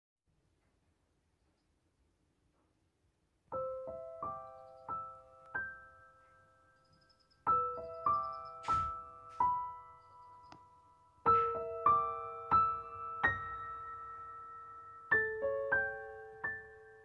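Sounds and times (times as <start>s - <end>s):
gentle piano melody: 2.4s - 17.0s.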